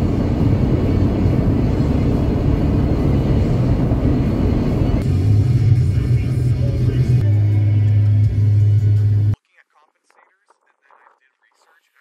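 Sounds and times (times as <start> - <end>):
vehicle cruising rumble: 0.0 - 9.4.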